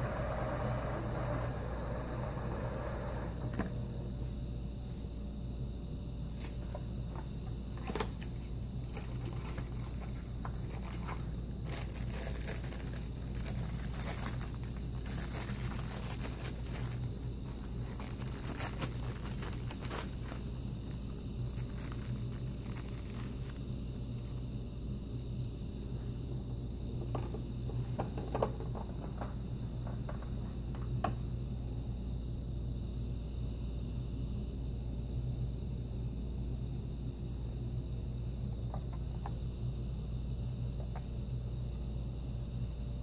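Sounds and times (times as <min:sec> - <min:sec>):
steady low hum: 0:00.0 - 0:43.0
plastic bag rustling: 0:08.8 - 0:23.6.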